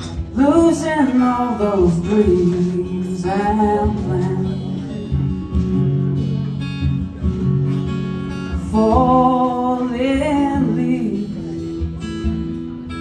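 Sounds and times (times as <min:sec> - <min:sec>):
acoustic guitar strumming: 0:00.0 - 0:13.0
man singing: 0:00.2 - 0:05.3, 0:08.6 - 0:11.8.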